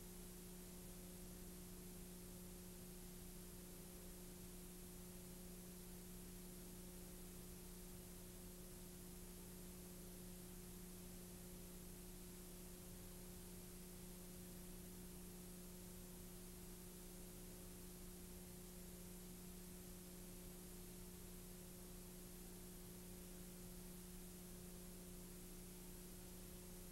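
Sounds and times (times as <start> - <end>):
constant hiss: 0.0 - 26.9
faint electrical hum: 0.0 - 26.9.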